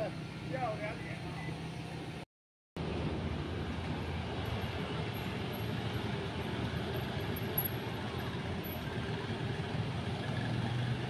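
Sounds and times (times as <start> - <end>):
road traffic of scooters and cars: 0.0 - 2.2, 2.8 - 11.0.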